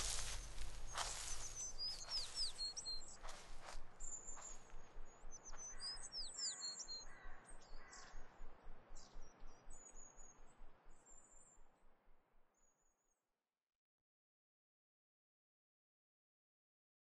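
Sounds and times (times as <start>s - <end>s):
small birds chirping: 0.0s - 11.6s
faint outdoor hiss: 0.0s - 11.7s
downward-sweeping bird whistles: 0.9s - 3.2s.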